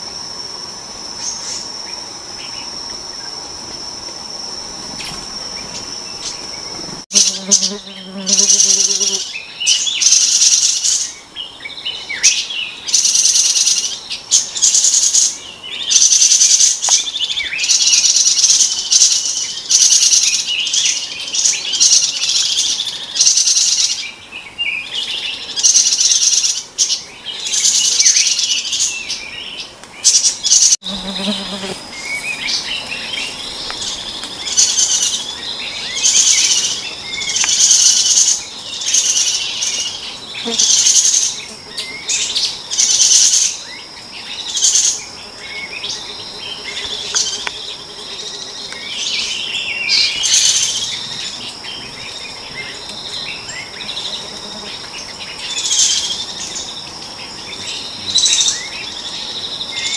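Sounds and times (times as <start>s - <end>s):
insects buzzing: 0.0s - 59.9s
birds chirping: 4.6s - 59.9s.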